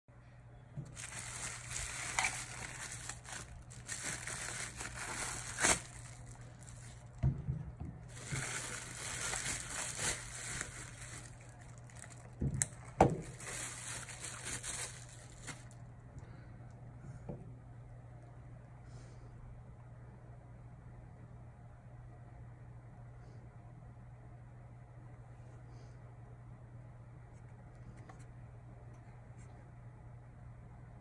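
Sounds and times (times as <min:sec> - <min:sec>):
bubble wrap crinkling: 0:00.8 - 0:07.3, 0:08.0 - 0:15.9.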